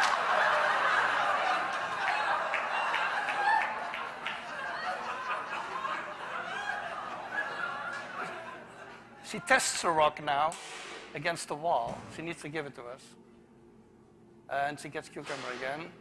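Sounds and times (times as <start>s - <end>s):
audience laughing: 0.0s - 9.2s.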